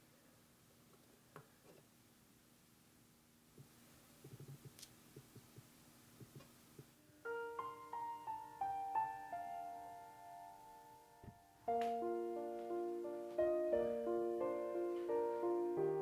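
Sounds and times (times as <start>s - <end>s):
solo piano music: 7.1s - 16.0s.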